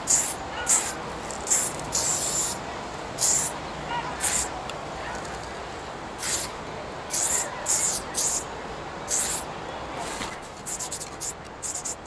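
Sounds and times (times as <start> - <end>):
spray paint hissing bursts: 0.0 - 2.6, 3.2 - 3.6, 4.2 - 4.5, 6.2 - 8.5, 9.1 - 9.5, 10.6 - 12.0
steady background hiss: 0.0 - 12.0.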